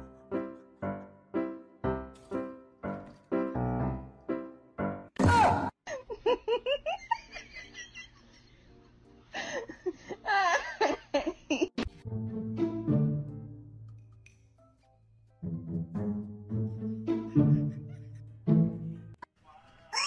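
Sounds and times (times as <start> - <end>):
plucked notes music: 0.0 - 5.1, 11.9 - 14.3.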